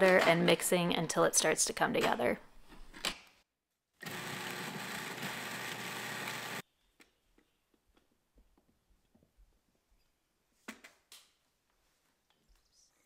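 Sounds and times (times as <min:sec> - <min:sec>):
food processor running: 0:04.0 - 0:06.6.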